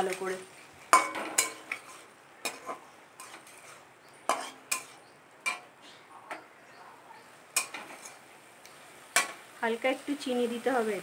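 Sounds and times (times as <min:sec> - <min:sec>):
utensil scraping a cooking pan: 0:00.0 - 0:06.4, 0:07.5 - 0:09.5
frying hiss: 0:00.0 - 0:11.0.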